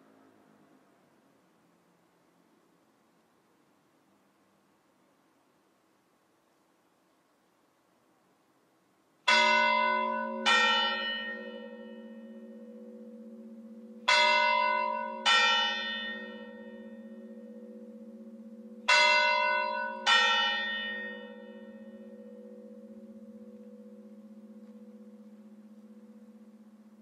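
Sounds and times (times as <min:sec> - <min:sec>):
bells ringing ding-dong: 0:09.3 - 0:27.0
low pulsing hum: 0:21.4 - 0:27.0.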